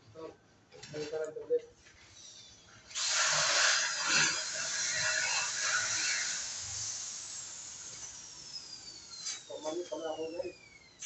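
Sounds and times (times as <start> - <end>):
welding arc hissing: 2.9 - 8.6.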